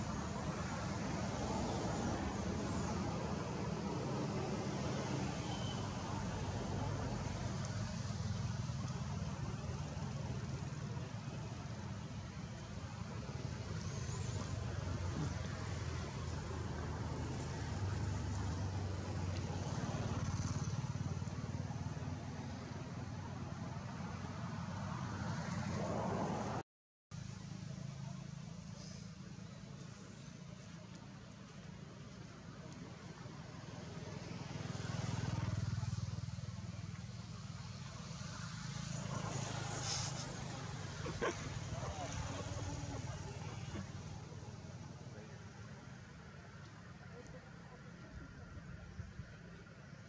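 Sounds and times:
vehicle engine humming: 34.7 - 50.0.

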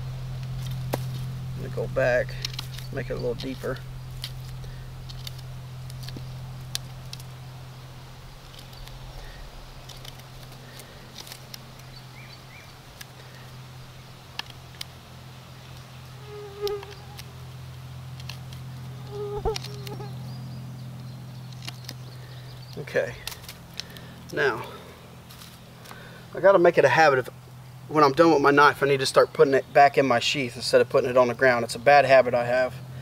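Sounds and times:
steady low buzz: 0.0 - 33.0
knife carving wood: 2.4 - 7.6, 8.2 - 12.0, 15.6 - 17.4, 18.1 - 20.2, 21.4 - 24.0.

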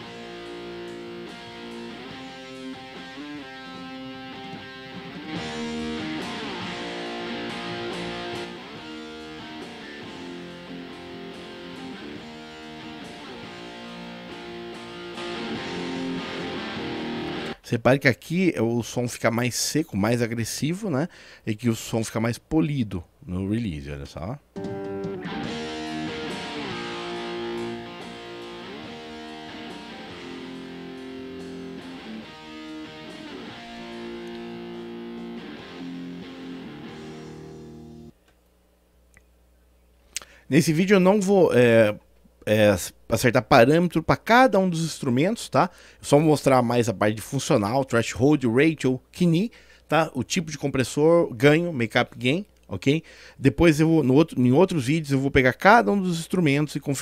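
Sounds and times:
electric guitar strummed chords: 0.0 - 17.6, 24.6 - 38.1.

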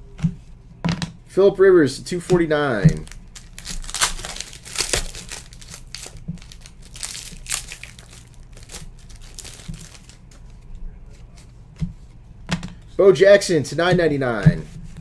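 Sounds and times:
foil wrapper crinkling: 2.9 - 10.7.

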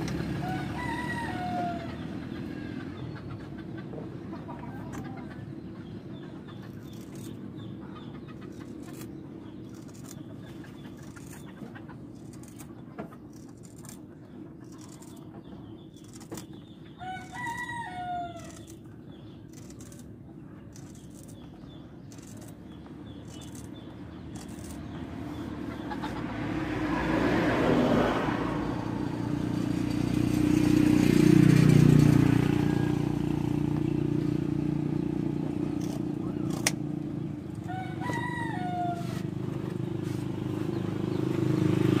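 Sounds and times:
rooster crowing: 0.2 - 2.1, 17.0 - 18.7, 32.2 - 33.6, 37.6 - 39.4.

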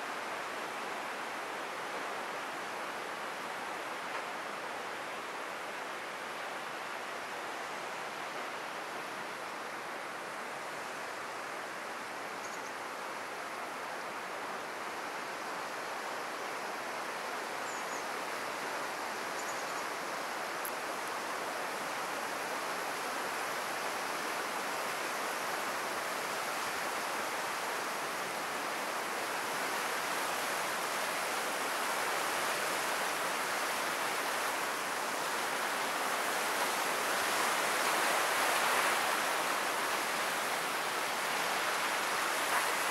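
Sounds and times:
turbulent water rushing: 25.4 - 42.9.

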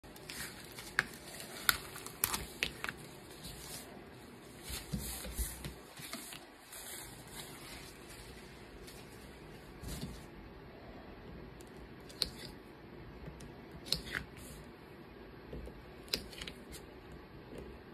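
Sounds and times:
vinyl crinkling: 0.0 - 10.2.

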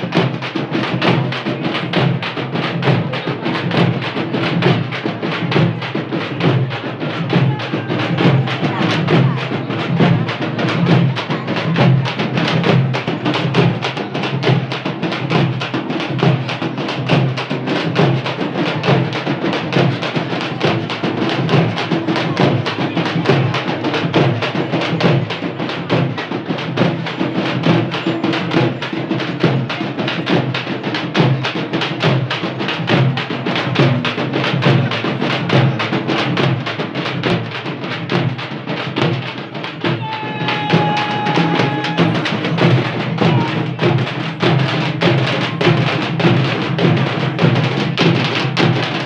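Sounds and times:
crowd voices: 0.0 - 49.0
frame drums beaten by hand: 0.0 - 49.0
shrill steady tone: 40.0 - 42.4.

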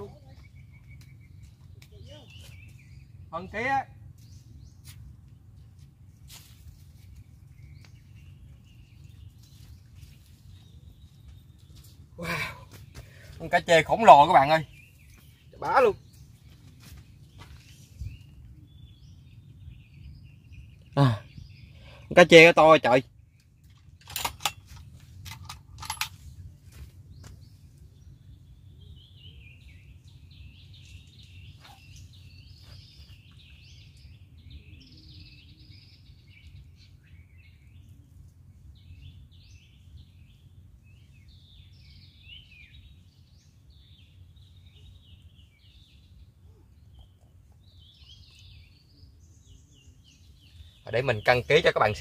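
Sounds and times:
small birds chirping: 0.0 - 52.0
steady low rumble: 23.0 - 34.8.

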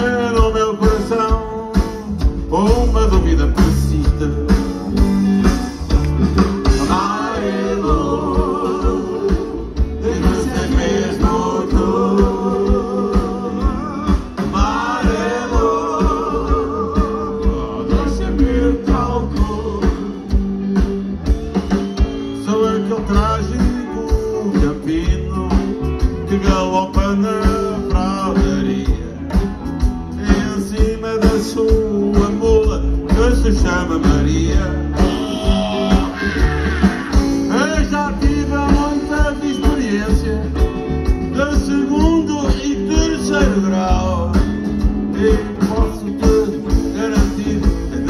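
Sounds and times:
live rock band playing: 0.0 - 48.0
person singing: 6.7 - 20.3.

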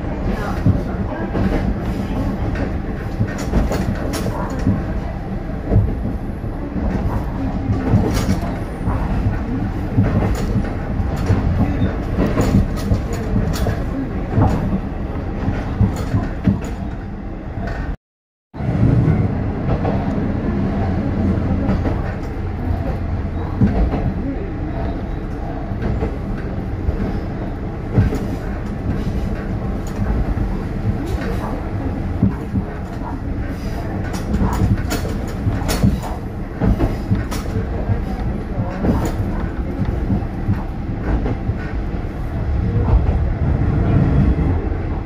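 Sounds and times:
train engine hum: 0.0 - 18.0, 18.6 - 45.0
wheels clacking over rail joints: 25.7 - 44.7.

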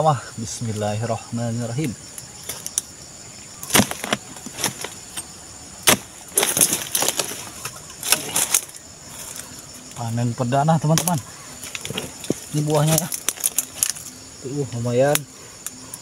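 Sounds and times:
fronds rustling: 0.3 - 16.0
chisel chopping palm stalk: 3.6 - 8.7.

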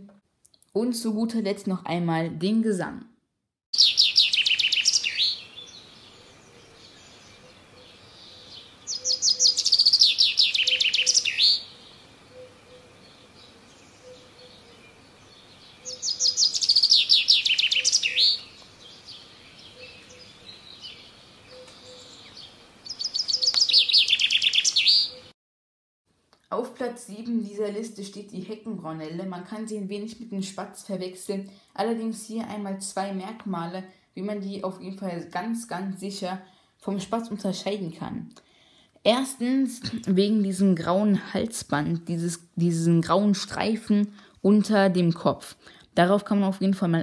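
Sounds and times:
chaffinch singing: 3.8 - 25.3.

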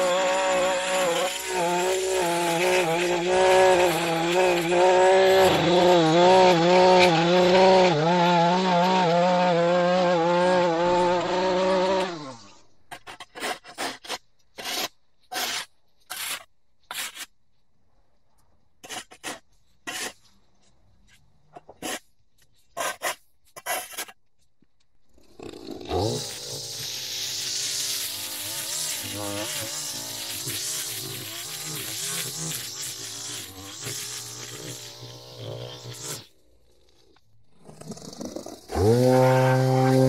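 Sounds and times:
shovel scraping concrete: 0.0 - 9.2, 12.9 - 17.4, 18.8 - 20.3, 21.6 - 22.1, 22.8 - 24.2, 25.9 - 36.3, 38.7 - 40.0
gas edger engine running: 0.0 - 12.4, 25.4 - 36.3, 37.7 - 40.0.

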